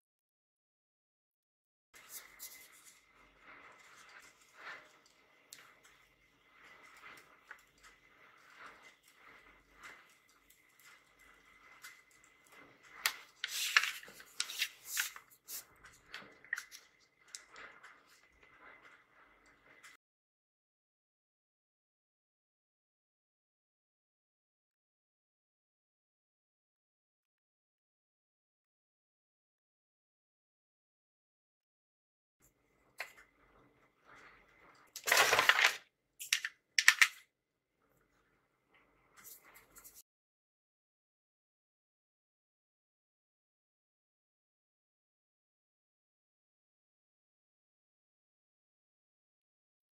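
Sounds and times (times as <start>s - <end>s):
paper envelope crinkling: 13.0s - 16.8s, 35.0s - 37.2s.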